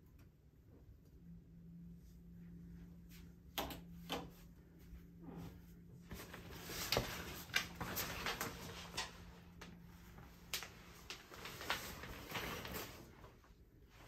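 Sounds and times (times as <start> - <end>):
shower curtain rustling: 5.3 - 14.0.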